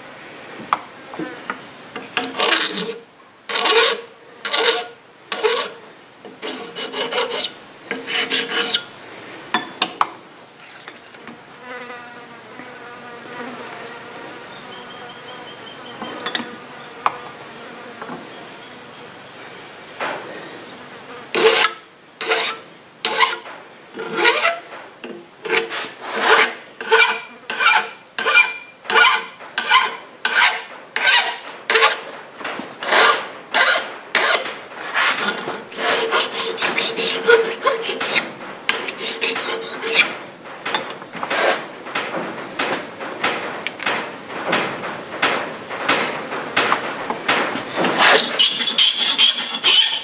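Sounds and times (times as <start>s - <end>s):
hand file rasping on metal: 2.3s - 5.8s, 6.4s - 8.9s, 24.0s - 24.6s, 25.4s - 32.0s, 32.8s - 40.2s, 47.8s - 50.0s.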